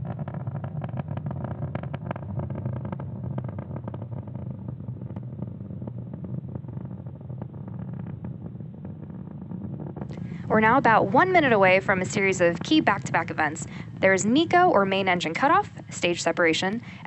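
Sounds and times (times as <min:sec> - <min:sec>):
rocket engines rumbling and crackling: 0:00.0 - 0:17.0.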